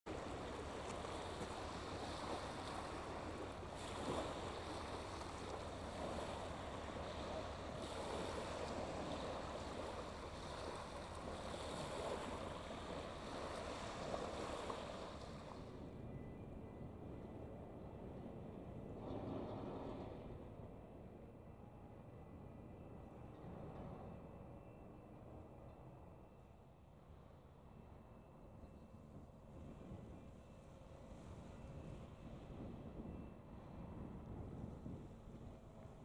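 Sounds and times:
waves washing onto shingle: 0.1 - 15.6.

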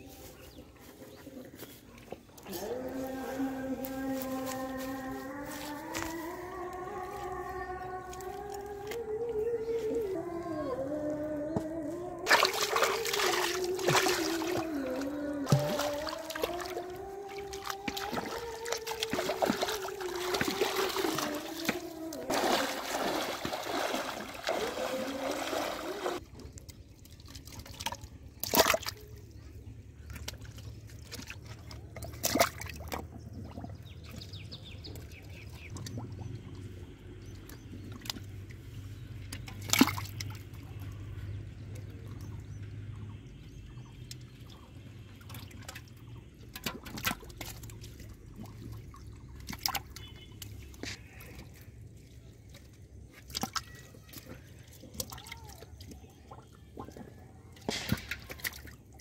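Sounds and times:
person wading through water: 0.0 - 59.0
water sloshing and dripping: 0.1 - 59.0
sharp water splashes: 12.3 - 26.2, 27.2 - 29.1, 39.3 - 40.5, 44.8 - 51.4, 57.6 - 59.0.

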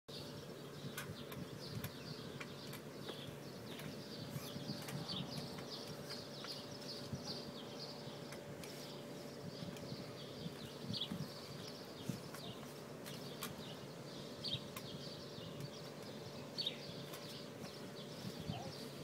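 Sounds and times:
trampoline springs squeaking: 1.0 - 7.6.

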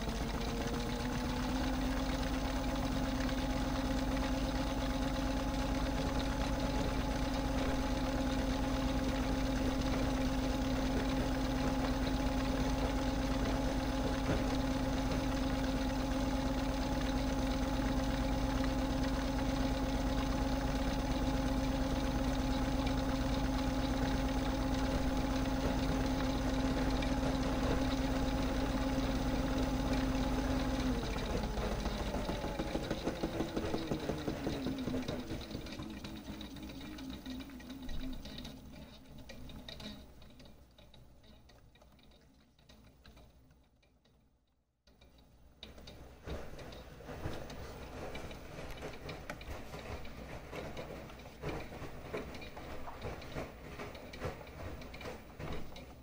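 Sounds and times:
drum rattling: 0.0 - 40.9
mechanical sound: 0.0 - 44.2
toy washing machine motor humming: 0.0 - 44.2, 44.9 - 56.0.

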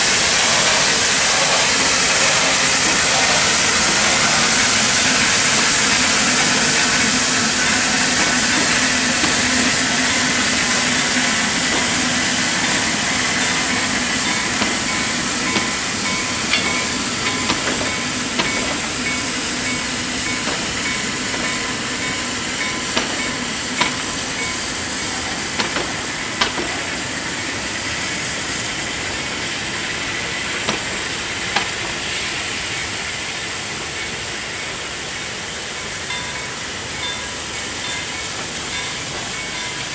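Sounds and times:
steam train hissing: 0.0 - 39.9
level crossing bells ringing: 1.6 - 26.7.

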